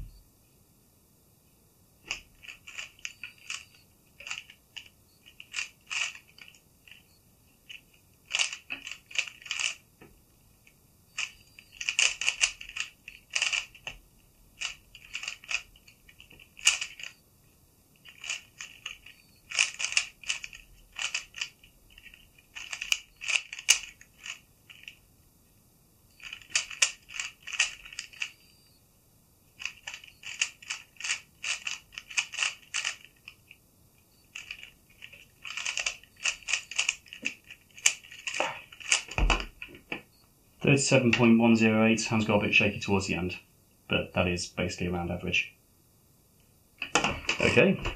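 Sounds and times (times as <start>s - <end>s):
plastic puzzle cube clacking: 2.1s - 7.0s, 7.7s - 9.8s, 11.2s - 14.0s, 14.6s - 17.2s, 18.0s - 25.0s, 26.2s - 28.3s, 29.6s - 33.4s, 34.3s - 39.5s.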